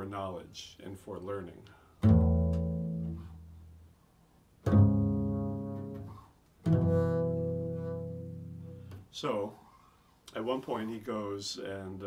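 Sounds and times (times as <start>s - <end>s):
plucked double bass notes: 2.0s - 4.0s, 4.6s - 9.1s.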